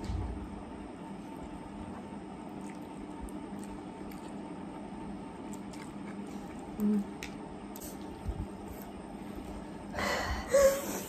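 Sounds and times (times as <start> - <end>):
steady low hum: 0.0 - 11.0
slurping and chewing noodles: 1.3 - 4.7, 5.3 - 9.0.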